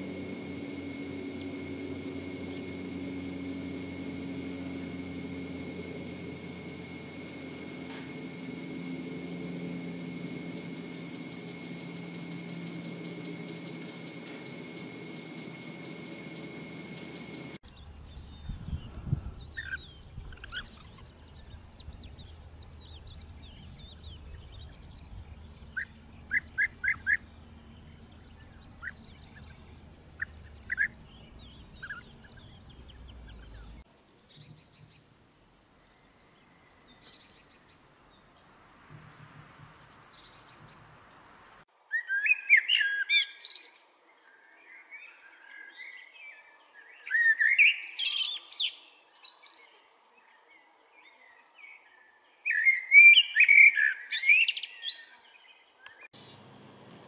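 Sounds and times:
low background rumble: 0.0s - 33.8s
blackbird warbling song: 0.0s - 35.1s, 35.7s - 41.0s, 41.9s - 57.0s
sharp bird chirps: 10.1s - 35.1s.

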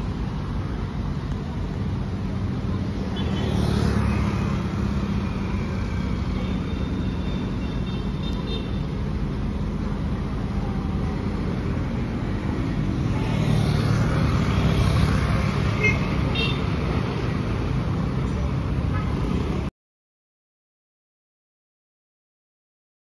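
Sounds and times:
traffic engine rumble: 0.0s - 19.7s
motor scooter passing: 3.3s - 6.4s, 13.0s - 15.8s.

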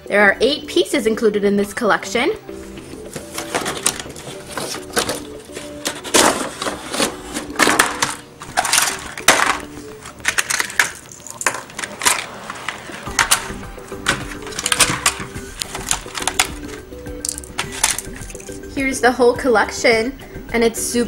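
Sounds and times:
light background music: 0.0s - 21.0s
packaging rustling and clicking: 3.0s - 18.7s.

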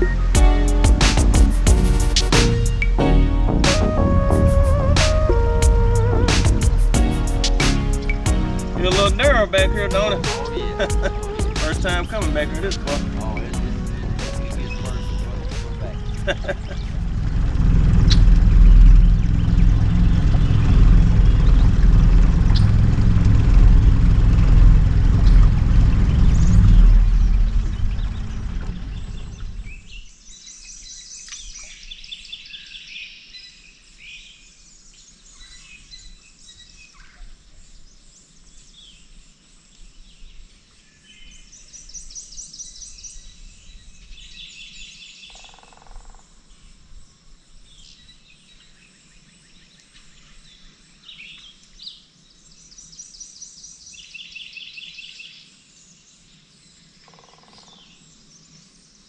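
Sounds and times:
songbirds trilling: 0.0s - 2.9s, 5.5s - 22.9s, 24.3s - 59.0s
bird chirps: 8.0s - 17.0s, 18.0s - 21.8s.

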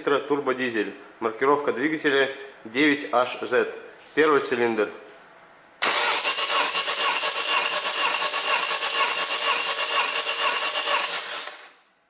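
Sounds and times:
engine cranking on starter: 5.8s - 8.8s.

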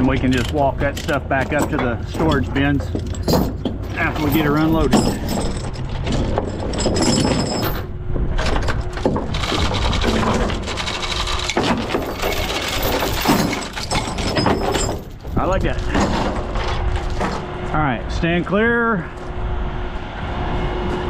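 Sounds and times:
metal chain clanking: 0.0s - 17.4s
chain links knocking on wood: 0.3s - 7.9s, 9.0s - 16.4s.

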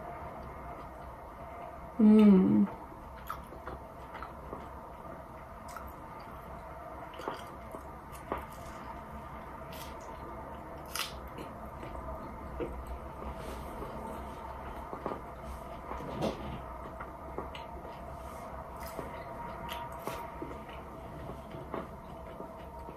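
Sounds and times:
steady low hum: 0.0s - 22.9s
chewing crunchy food: 3.2s - 5.0s, 5.6s - 14.0s, 18.8s - 22.9s.

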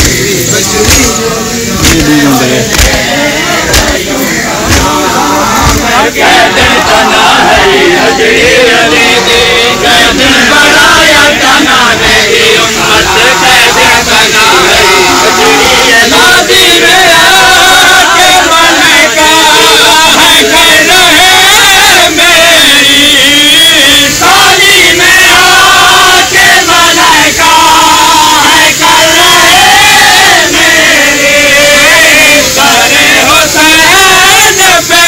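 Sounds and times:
sharp beats: 0.0s - 7.7s
crowd of men chanting: 0.0s - 35.0s.

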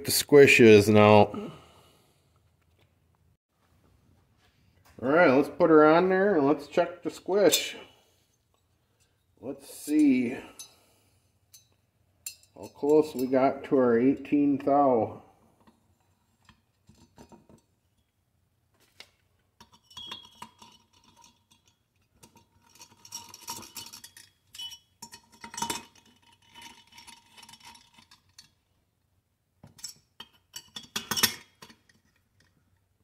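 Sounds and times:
metal clinks and scrapes: 7.3s - 14.5s, 19.6s - 28.8s, 29.7s - 32.8s.

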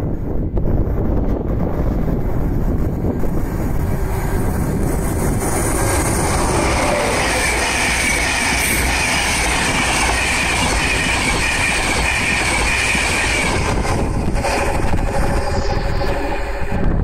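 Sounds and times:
high train whine: 0.0s - 17.0s
train wheels rushing on rails: 0.0s - 17.0s.

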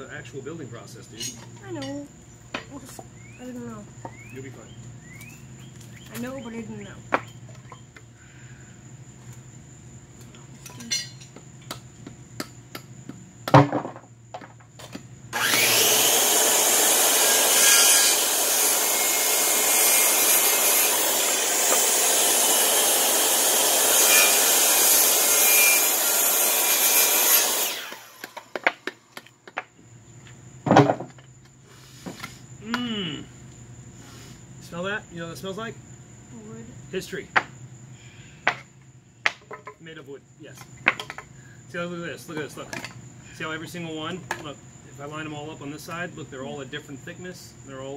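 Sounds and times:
circular saw cutting wood: 15.3s - 28.7s.

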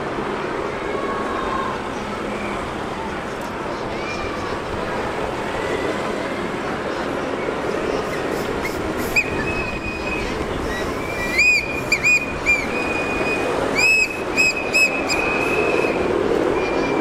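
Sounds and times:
cars passing by: 4.3s - 16.6s
whistle blasts: 9.1s - 16.1s.

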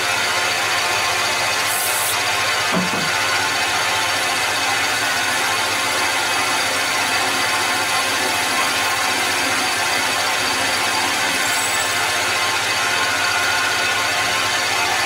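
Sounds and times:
metal lathe drilling: 0.0s - 15.0s.

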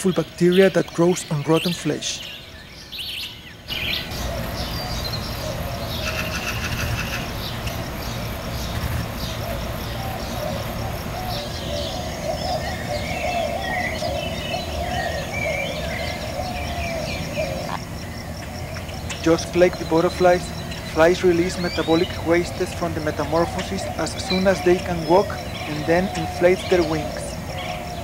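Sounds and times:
bird trill: 0.0s - 28.0s
small birds chirping: 0.0s - 28.0s
steady low rumble: 14.0s - 28.0s.

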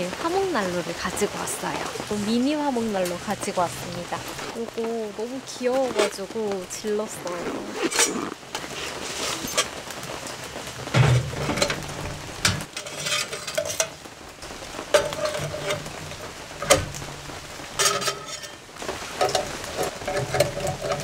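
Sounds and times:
metal parts clinking and scraping: 12.4s - 14.0s, 17.7s - 18.6s.

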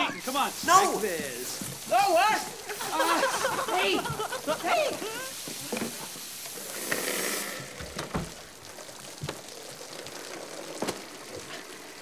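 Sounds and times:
water spraying and splattering: 0.0s - 12.0s
sharp knocks and thumps: 7.8s - 8.4s.

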